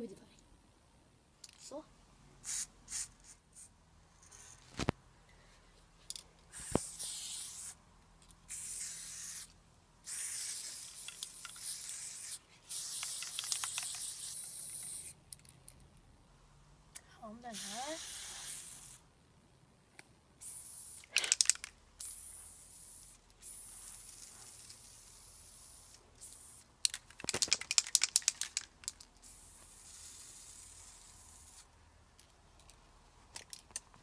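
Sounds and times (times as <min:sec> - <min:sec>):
spray paint can spraying: 0:02.4 - 0:03.7, 0:06.5 - 0:07.8, 0:08.4 - 0:15.2, 0:17.5 - 0:19.0, 0:20.4 - 0:31.7
spray can mixing ball rattling: 0:10.1 - 0:15.1, 0:20.4 - 0:31.6.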